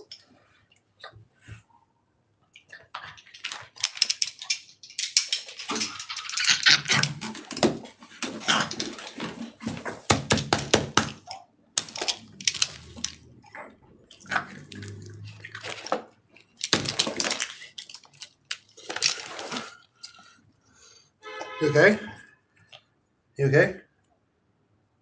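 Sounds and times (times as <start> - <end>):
dog gasping and retching: 2.7 - 10.1, 12.0 - 18.0.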